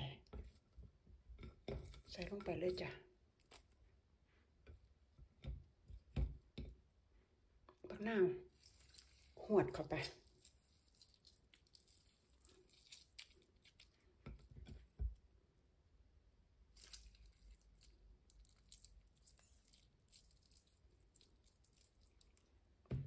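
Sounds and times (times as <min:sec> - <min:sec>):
lime squelching being squeezed: 0:08.5 - 0:14.0, 0:16.7 - 0:22.6.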